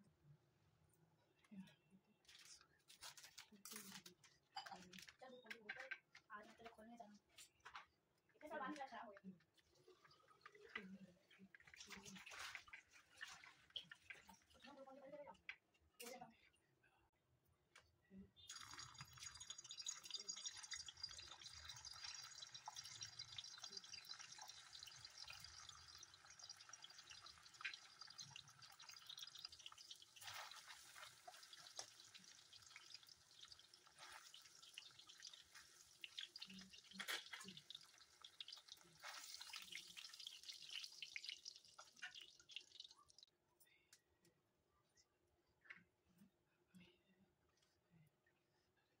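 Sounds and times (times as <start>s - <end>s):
food sizzling in hot oil: 18.5s - 43.2s.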